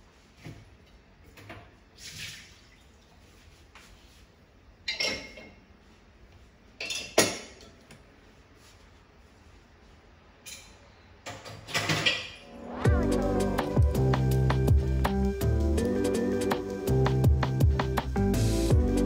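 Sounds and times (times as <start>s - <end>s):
glass clinking on wire rack: 4.9s - 5.6s.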